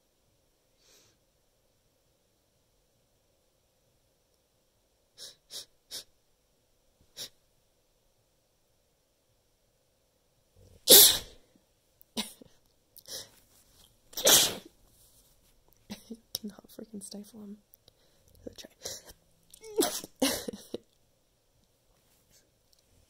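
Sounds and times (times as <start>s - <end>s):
person sniffing: 10.7s - 11.4s, 14.2s - 14.7s
person sneezing: 10.8s - 11.4s, 14.2s - 14.7s.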